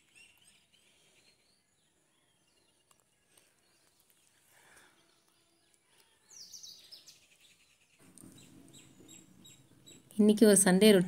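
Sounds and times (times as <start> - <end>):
birds chirping: 0.0 - 11.0
high twittering calls: 6.3 - 10.4.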